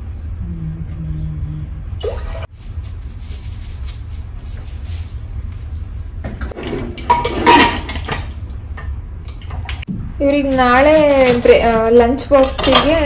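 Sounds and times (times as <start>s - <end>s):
steady low hum: 0.0s - 13.0s
utensils and containers knocking: 6.5s - 8.3s.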